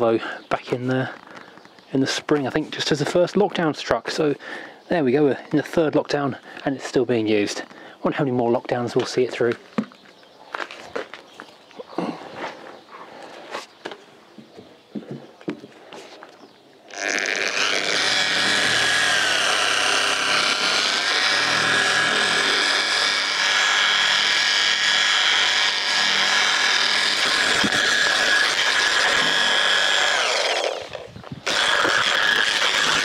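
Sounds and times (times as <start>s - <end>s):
polisher whining: 16.9s - 33.0s.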